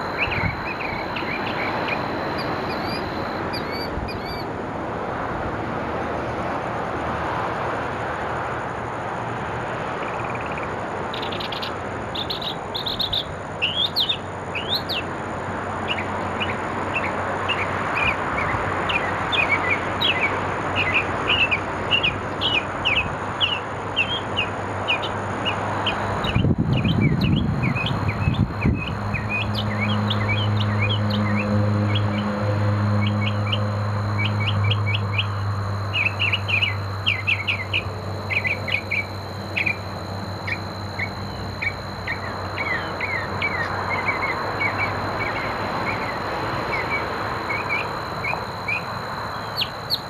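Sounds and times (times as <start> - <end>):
mockingbird singing: 0.0 - 4.5, 10.2 - 15.1, 18.9 - 32.2, 34.2 - 50.0
steady low hum: 0.0 - 5.0, 22.3 - 50.0
steady background noise: 0.0 - 50.0.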